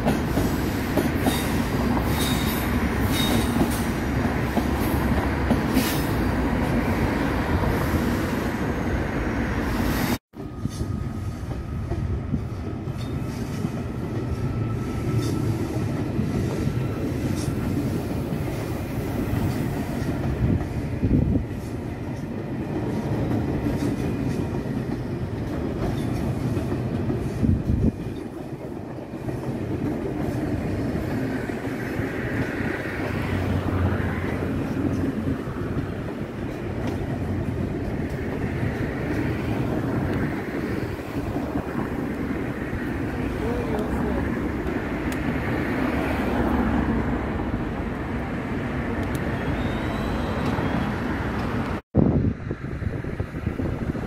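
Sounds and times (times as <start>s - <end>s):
train wheels rumbling on rails: 0.0s - 54.0s
faint wheel squeals: 49.4s - 51.1s.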